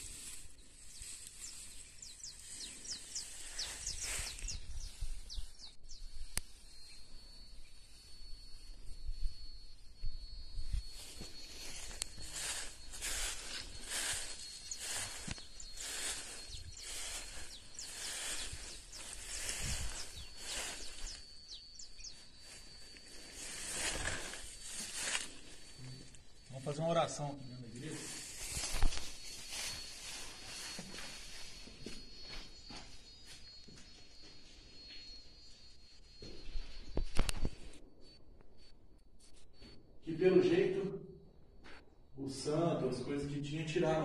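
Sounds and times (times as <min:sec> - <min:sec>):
footsteps through dry grass: 0:00.0 - 0:05.7, 0:10.7 - 0:26.9, 0:27.8 - 0:33.6
small birds chirping: 0:00.0 - 0:38.6
thin high tone: 0:00.0 - 0:41.0
bird chirping rapidly: 0:00.9 - 0:06.1, 0:13.4 - 0:22.8.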